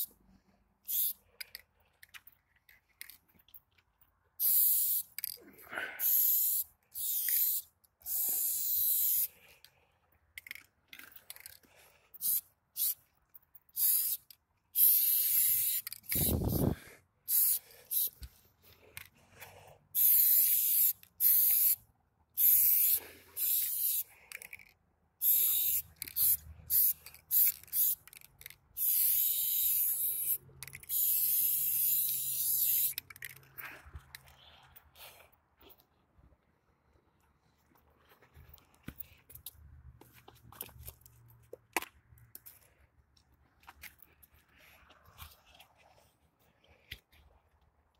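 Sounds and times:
spray-paint can hissing: 0.9s - 1.2s, 4.4s - 5.1s, 6.0s - 9.3s, 12.2s - 13.0s, 13.8s - 16.7s, 17.3s - 18.1s, 20.0s - 21.8s, 22.4s - 24.1s, 25.2s - 28.0s, 28.8s - 33.0s.

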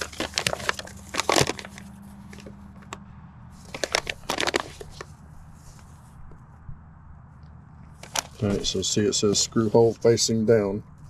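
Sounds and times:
paper crackling and rustling: 0.0s - 3.0s, 3.6s - 6.0s, 7.9s - 10.0s.

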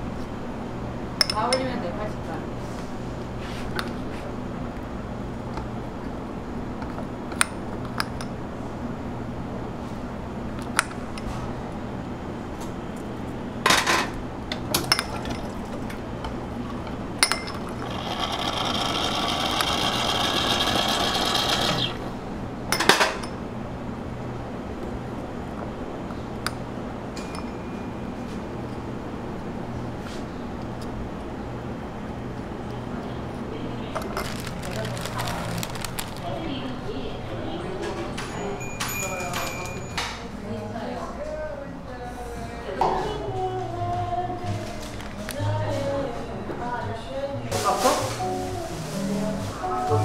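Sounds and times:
appliance hum: 0.0s - 50.0s
hissing whir: 17.8s - 22.1s.

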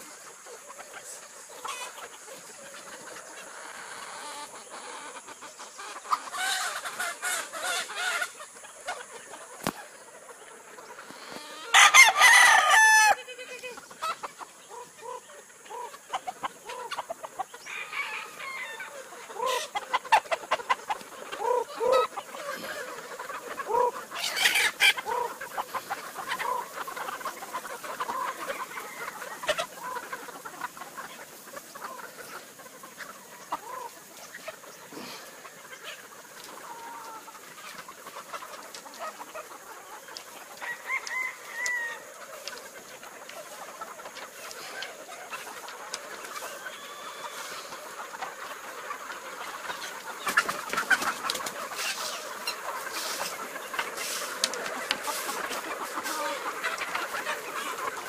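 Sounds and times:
chickens clucking: 0.0s - 58.0s
rooster crowing: 11.6s - 13.3s, 17.6s - 19.6s, 40.6s - 42.1s.

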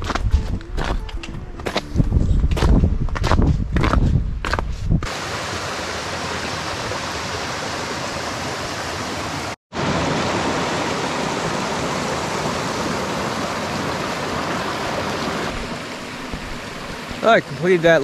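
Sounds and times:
brook water rushing: 5.0s - 18.0s.

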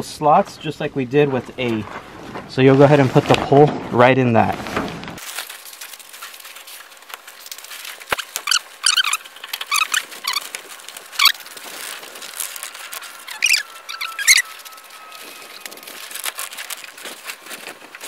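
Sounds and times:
tent pole squeaking on fabric: 4.6s - 18.0s.

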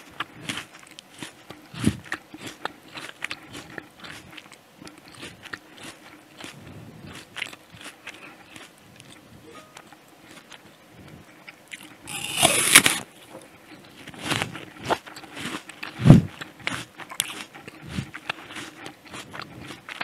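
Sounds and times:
apple crunch bite: 0.0s - 10.6s, 11.4s - 13.1s, 14.0s - 20.0s
crunchy chewing: 0.0s - 20.0s.

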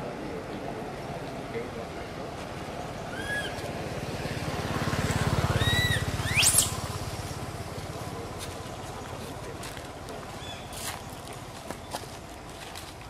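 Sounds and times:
motor passing: 2.5s - 9.4s
high arched calls: 3.0s - 3.8s, 5.4s - 7.4s.

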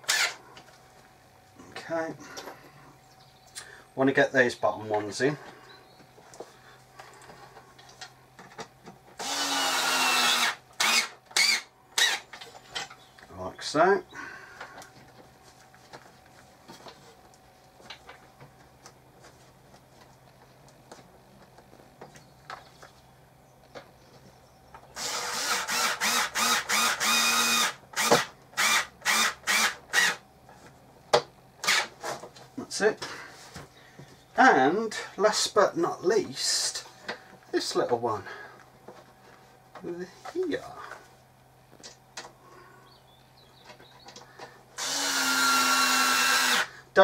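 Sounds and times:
cordless drill motor running: 0.0s - 0.4s, 9.2s - 12.2s, 25.0s - 30.2s, 44.8s - 46.8s
electric screwdriver whirring: 0.0s - 0.4s, 9.2s - 12.2s, 25.0s - 30.2s, 44.8s - 46.7s.

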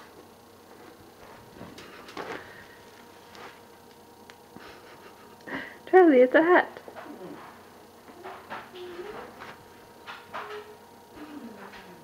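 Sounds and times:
rustling of fur and paws: 0.6s - 3.7s.

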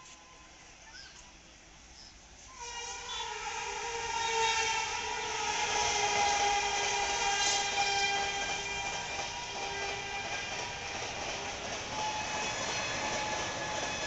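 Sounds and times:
train horn: 2.4s - 11.3s, 11.9s - 14.0s
train coaches rushing past: 2.4s - 14.0s.

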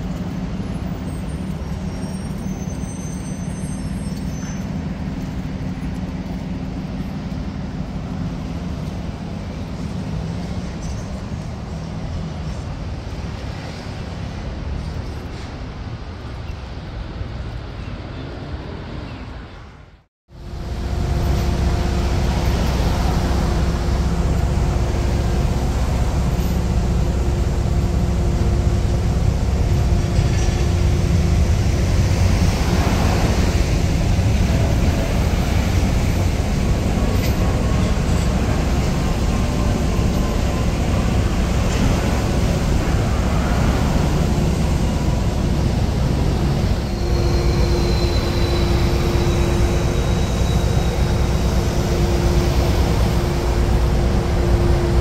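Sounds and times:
train low rumble: 0.0s - 55.0s
vehicles swishing past: 29.6s - 55.0s.

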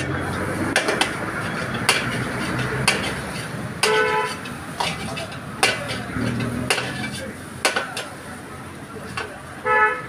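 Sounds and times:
metal ladle clanking on wok: 0.7s - 8.2s.

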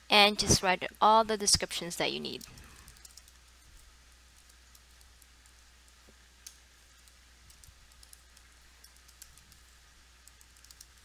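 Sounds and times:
low steady hum: 0.0s - 11.0s
keyboard keystrokes: 7.0s - 11.0s.

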